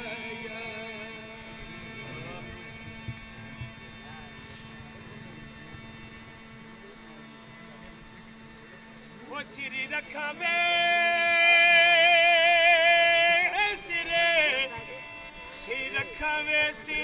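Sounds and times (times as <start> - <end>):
man singing: 0.0 - 2.8, 9.2 - 17.0
steady low hum: 0.0 - 17.0.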